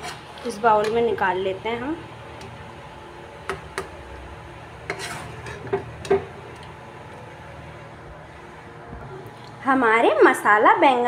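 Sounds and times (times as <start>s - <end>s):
spoon scraping curry: 4.8s - 6.8s.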